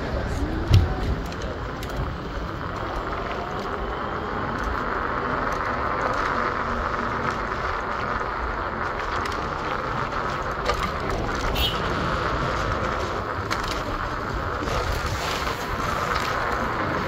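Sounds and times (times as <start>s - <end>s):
city hiss: 0.0s - 17.0s.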